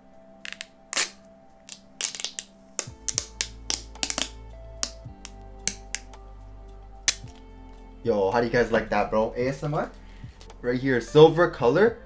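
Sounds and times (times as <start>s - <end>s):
background music: 0.0s - 12.0s
plastic film peeling crackles: 0.5s - 6.0s.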